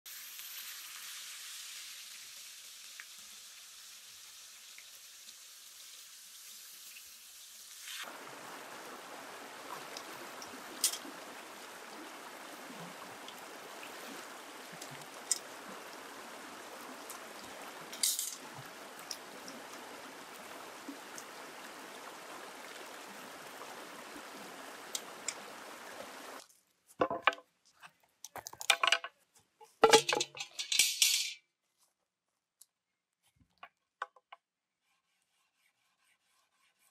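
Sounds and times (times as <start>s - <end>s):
faint hiss: 0.1s - 26.4s
river water flowing over rocks: 7.9s - 26.4s.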